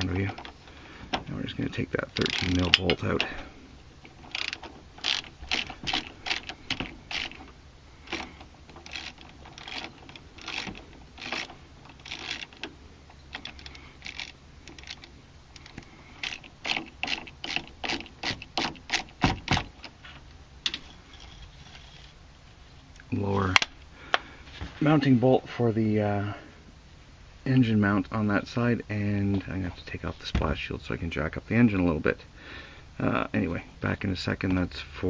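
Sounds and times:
socket ratchet clicking: 4.1s - 7.5s.

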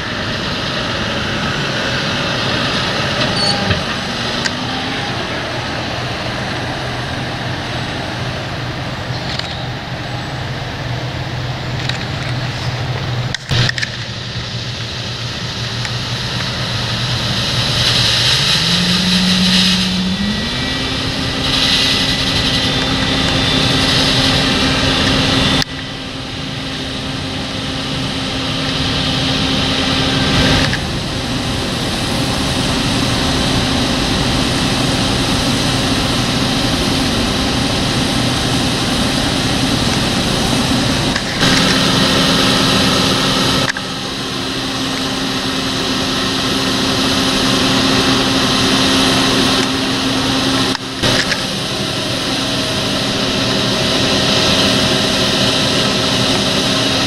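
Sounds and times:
tractor engine running at high revs: 0.0s - 57.0s
grain pouring hiss: 14.5s - 25.2s.

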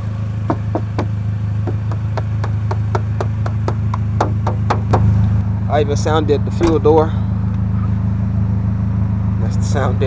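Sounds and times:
steady low hum: 0.0s - 10.0s
knuckles rapping on car door: 0.5s - 5.1s.

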